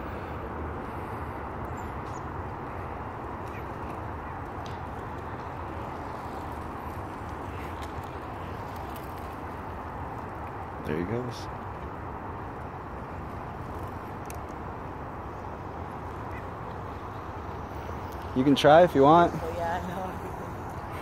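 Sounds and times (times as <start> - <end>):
distant road traffic hum: 0.0 - 21.0
small birds chirping: 0.8 - 10.0, 15.2 - 21.0.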